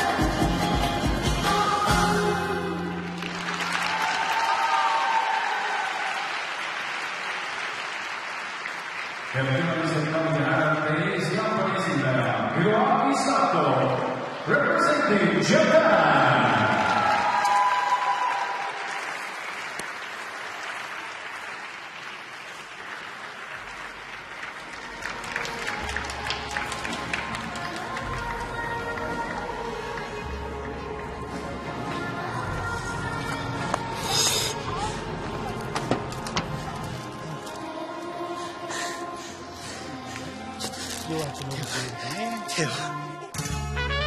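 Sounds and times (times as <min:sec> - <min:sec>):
crowd applauding: 0:03.0 - 0:10.4, 0:16.3 - 0:31.7.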